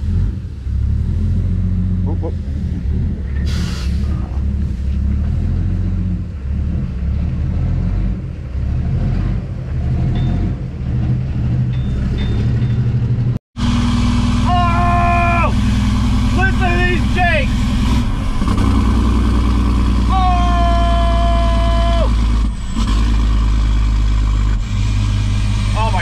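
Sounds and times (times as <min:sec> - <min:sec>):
diesel truck engine rumbling: 0:00.0 - 0:26.0
person calling out: 0:14.4 - 0:15.7, 0:16.4 - 0:17.5, 0:20.1 - 0:22.2.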